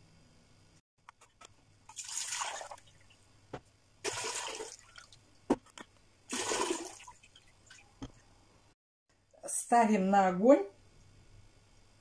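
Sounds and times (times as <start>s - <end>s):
water pouring from jars into pot: 1.9s - 3.1s.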